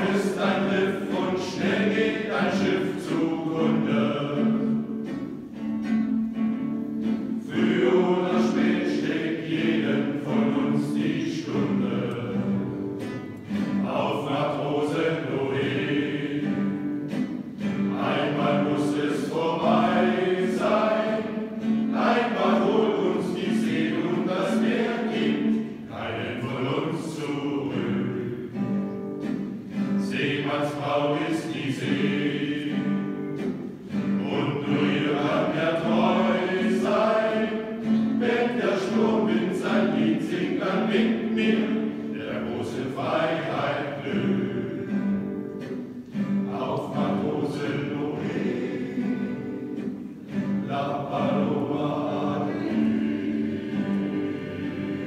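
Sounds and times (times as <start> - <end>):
men's choir singing: 0.0 - 5.4, 6.7 - 55.0.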